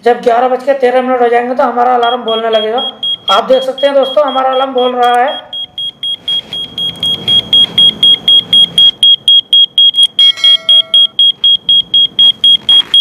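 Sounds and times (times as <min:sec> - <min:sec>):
rapid high-pitched alarm beeps: 0:02.0 - 0:13.0
short lower tone: 0:10.2 - 0:11.2.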